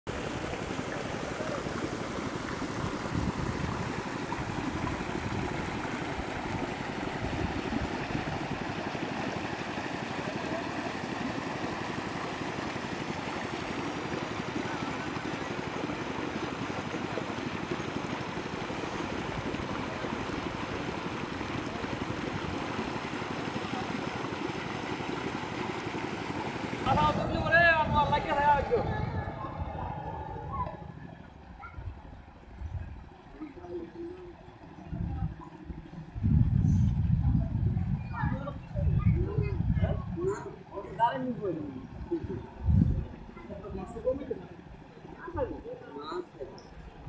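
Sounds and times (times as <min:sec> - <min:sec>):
steady outdoor wind: 0:00.1 - 0:47.0
wind buffeting microphone: 0:01.6 - 0:09.6, 0:26.7 - 0:41.0, 0:41.7 - 0:44.2.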